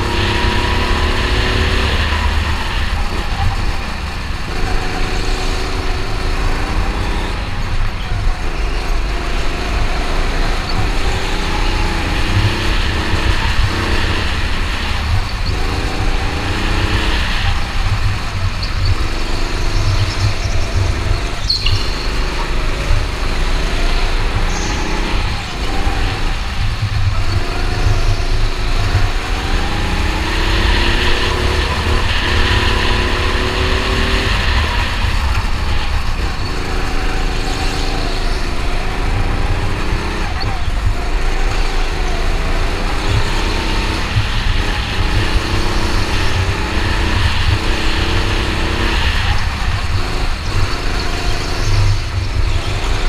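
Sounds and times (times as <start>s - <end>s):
go-kart engine revving: 0.0s - 53.0s.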